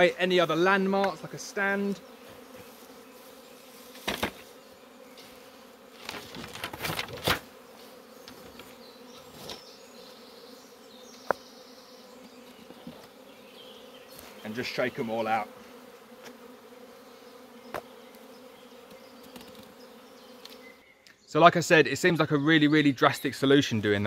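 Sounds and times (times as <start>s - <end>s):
bees buzzing: 0.0s - 21.0s
rustles: 2.0s - 9.8s, 14.0s - 14.8s
wooden hive parts knocking: 4.0s - 4.5s.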